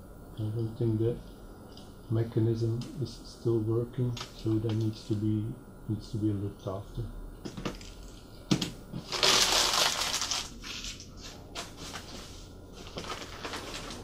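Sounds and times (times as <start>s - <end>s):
newspaper crumpling rustle: 9.0s - 14.0s.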